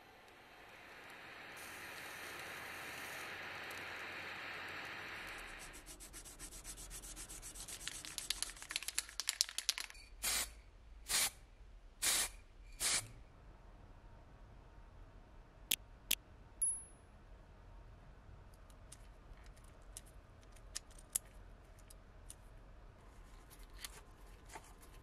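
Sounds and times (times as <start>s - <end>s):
gas torch flame hissing: 0.2s - 5.9s
abrasive paper rubbing metal: 5.6s - 8.9s.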